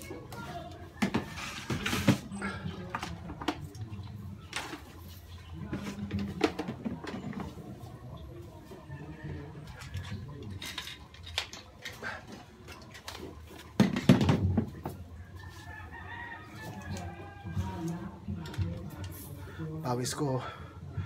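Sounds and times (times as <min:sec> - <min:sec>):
household things clattering: 0:01.0 - 0:08.0, 0:09.6 - 0:15.1.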